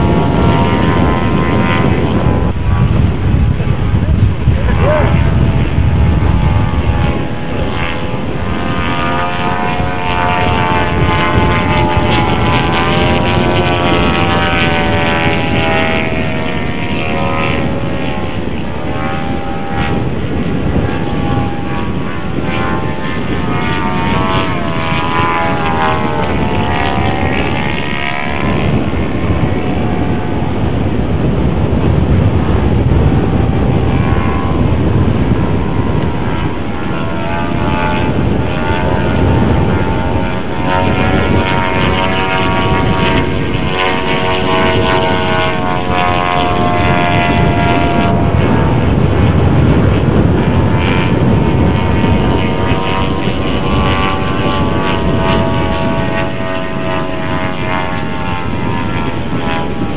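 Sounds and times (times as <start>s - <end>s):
model airplane engine: 0.0s - 59.9s.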